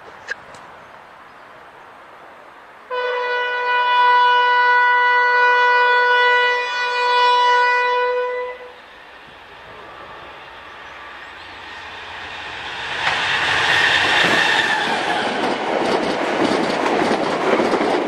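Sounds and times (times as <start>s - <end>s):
locomotive horn blast: 2.9s - 8.9s.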